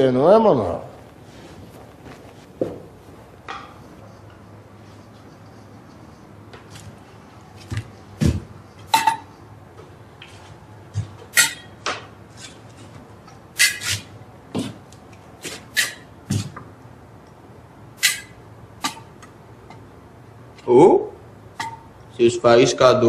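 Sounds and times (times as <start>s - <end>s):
low room hum: 0.0s - 23.0s
tools tapping and clinking: 3.4s - 4.5s, 7.6s - 9.5s, 21.6s - 21.9s.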